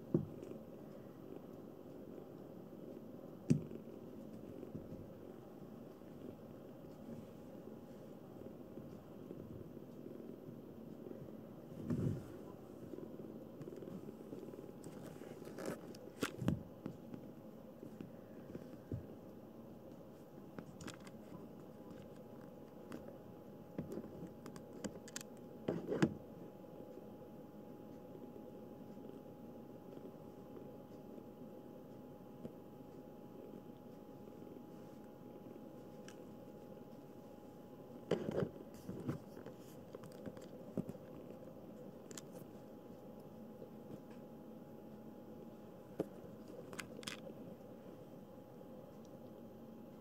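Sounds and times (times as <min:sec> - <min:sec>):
faint steady hum: 0:00.0 - 0:50.0
kitten rustling and scratching: 0:11.0 - 0:26.3, 0:33.3 - 0:47.6.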